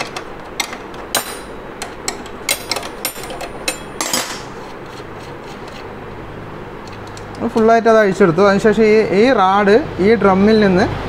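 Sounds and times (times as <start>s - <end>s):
metal nut clicking and clinking: 0.0s - 4.5s.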